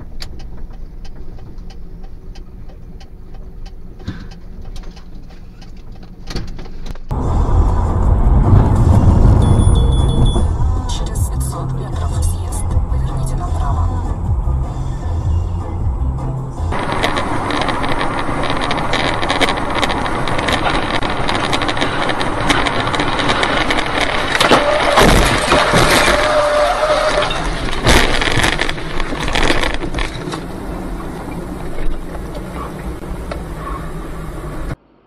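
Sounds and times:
road and wind noise in car: 0.0s - 35.0s
heavy crashes and bangs: 7.1s - 11.5s, 16.7s - 30.5s.

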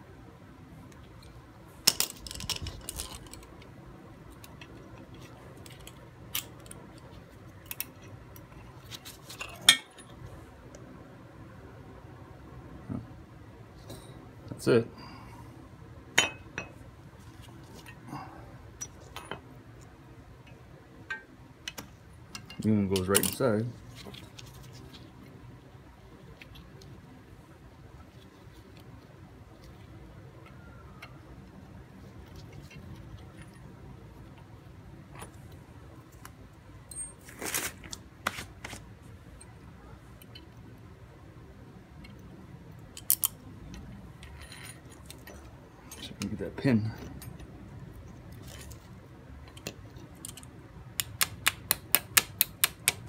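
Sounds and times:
metal parts clicking: 1.9s - 3.6s, 42.9s - 46.3s.

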